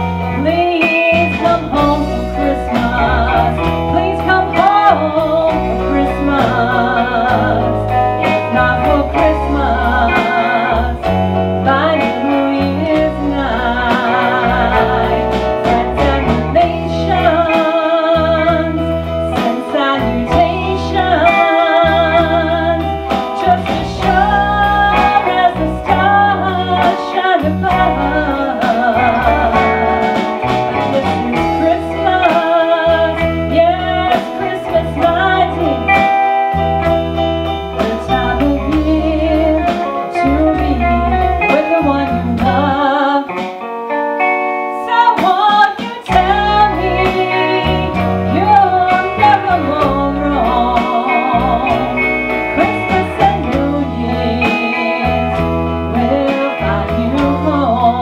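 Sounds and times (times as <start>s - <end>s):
bass guitar: 0.0s - 58.0s
drum kit: 0.0s - 58.0s
electric guitar: 0.0s - 58.0s
woman singing: 0.0s - 58.0s.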